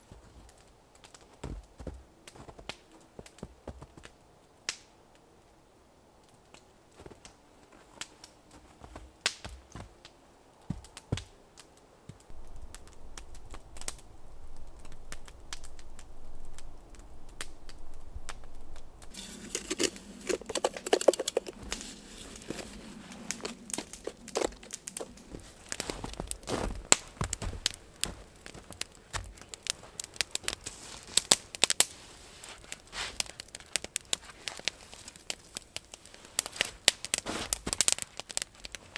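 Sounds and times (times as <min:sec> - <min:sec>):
campfire crackling and popping: 0:00.0 - 0:05.3, 0:06.2 - 0:38.9
metal pot scraping through snow: 0:19.1 - 0:26.7, 0:30.6 - 0:33.6, 0:36.3 - 0:37.7.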